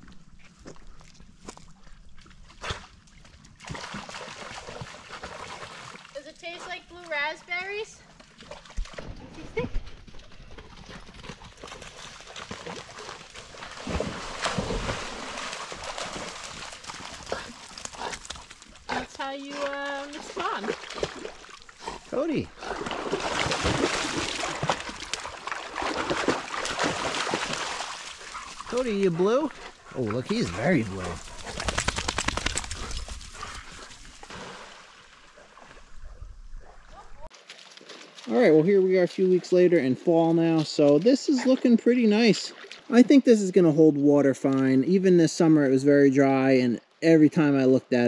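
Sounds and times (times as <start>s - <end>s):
water splashing and churning: 0.9s - 7.2s, 8.1s - 36.0s, 36.7s - 39.7s, 40.5s - 44.8s
dogs moving at water's edge: 8.1s - 39.6s.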